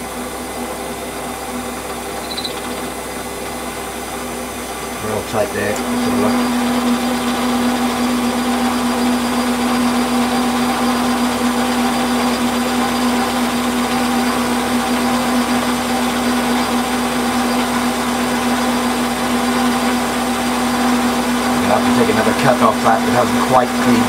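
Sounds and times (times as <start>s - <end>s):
metal lathe humming: 0.0s - 24.0s
lathe tool cutting metal: 5.0s - 24.0s.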